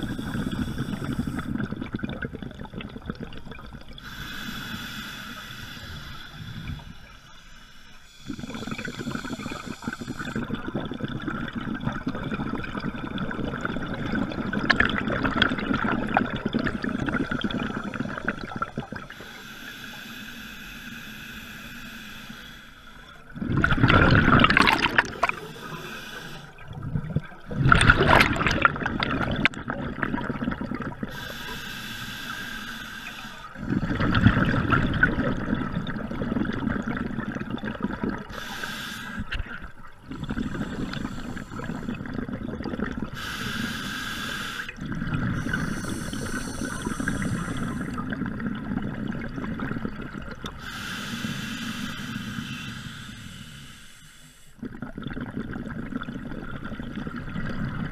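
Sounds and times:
diver breathing through regulator: 0.0 - 1.7, 4.0 - 10.6, 16.8 - 23.3, 24.4 - 26.7, 31.0 - 34.4, 38.3 - 42.3, 43.1 - 48.1, 50.4 - 54.6
exhaled bubbles bursting: 0.0 - 4.0, 8.2 - 19.2, 23.2 - 31.3, 33.6 - 38.5, 39.2 - 43.3, 44.7 - 50.6, 54.6 - 57.9
faint steady whine: 0.0 - 12.0, 15.7 - 29.6, 30.2 - 55.9.

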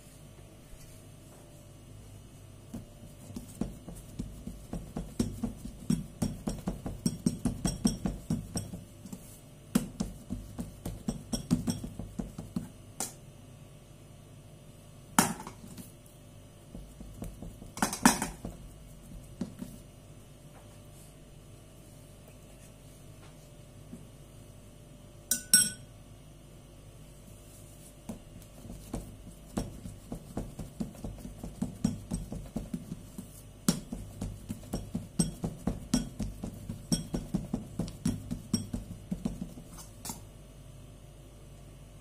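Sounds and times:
fingers patting dough on board: 2.6 - 12.8, 16.7 - 19.9, 27.8 - 40.1.

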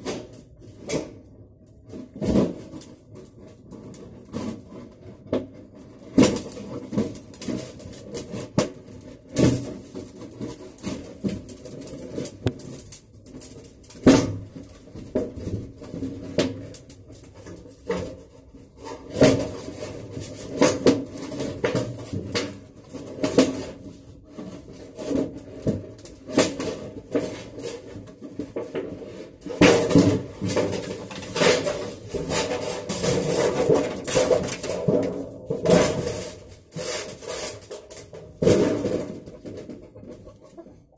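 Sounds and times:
metal sheet tearing and clanking: 24.7 - 39.7.

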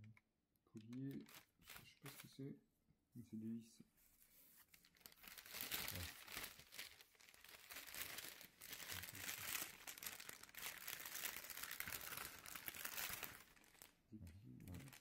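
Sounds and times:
plastic bag crinkling: 0.8 - 2.4, 4.7 - 15.0.

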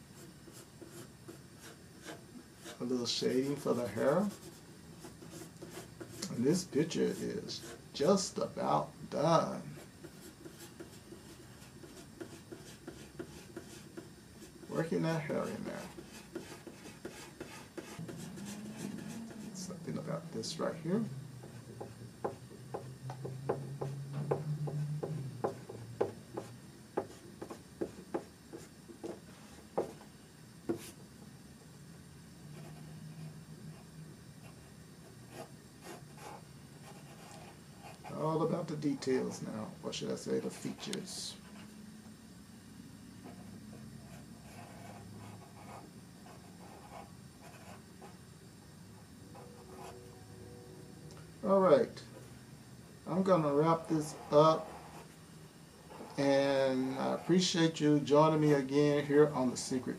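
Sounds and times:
pencil sketching on paper: 0.0 - 8.6, 9.4 - 19.7, 43.2 - 48.2, 49.4 - 50.0, 53.2 - 55.2, 55.9 - 57.8.

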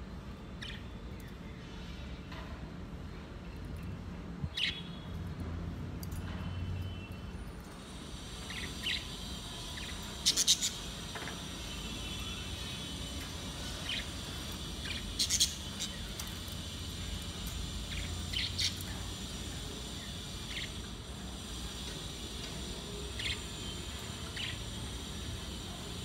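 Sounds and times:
budgerigars chirping: 14.8 - 16.0.

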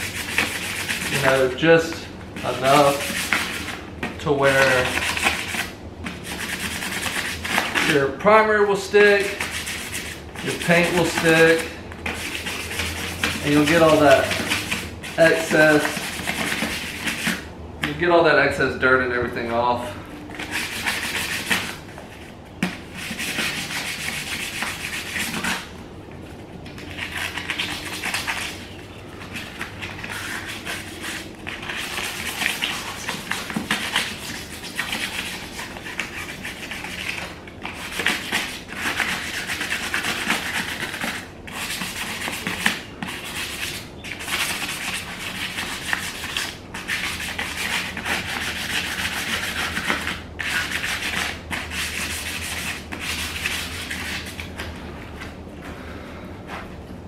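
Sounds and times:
sandpaper rubbing on metal wheel: 0.0 - 3.8, 4.4 - 8.1, 9.2 - 17.4, 20.4 - 21.9, 22.9 - 25.7, 26.9 - 54.5.

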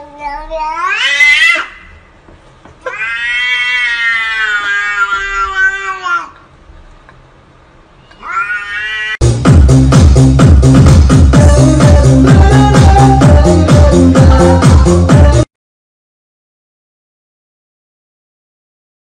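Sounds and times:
cats yowling: 0.0 - 2.0, 2.8 - 6.4, 8.1 - 9.2
loud electronic music: 9.2 - 15.5.

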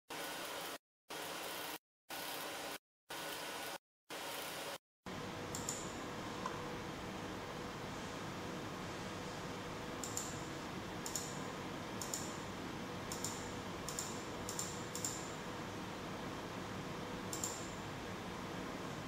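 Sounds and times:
faint hum: 5.1 - 19.0.

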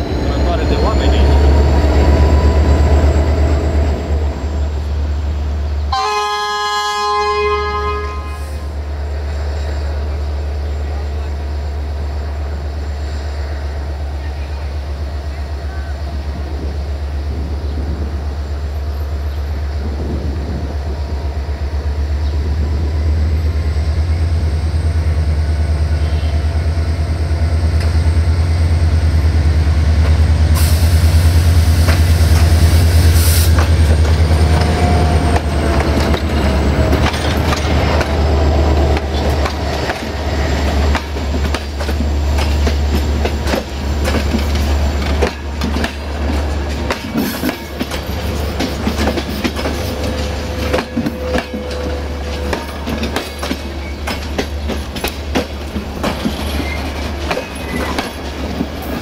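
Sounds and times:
train low rumble: 0.0 - 59.0
train air hiss: 30.5 - 33.6
wheels clicking over rail joints: 33.6 - 59.0
wheel squeal: 56.2 - 58.2.

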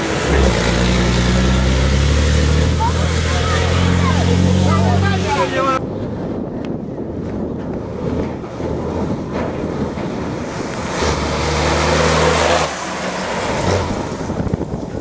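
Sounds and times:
truck diesel engine passing: 0.0 - 5.8, 7.8 - 15.0.

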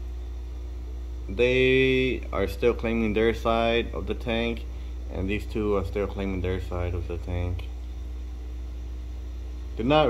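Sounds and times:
low electrical hum: 0.0 - 10.0
man speaking: 1.3 - 7.7, 9.8 - 10.0.

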